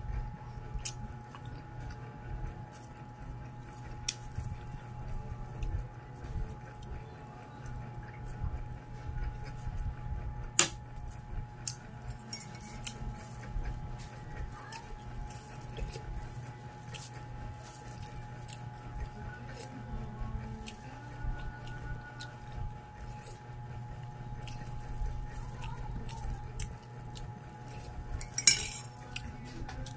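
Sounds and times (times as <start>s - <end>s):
person chewing food: 0.0s - 29.9s
steady low hum: 0.0s - 29.9s
metal spoon clinking on plate: 12.2s - 13.0s, 28.2s - 29.0s.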